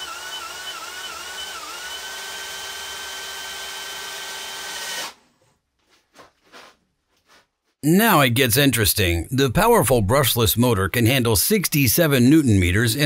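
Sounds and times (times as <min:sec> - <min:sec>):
cordless drill whining: 0:00.0 - 0:05.2.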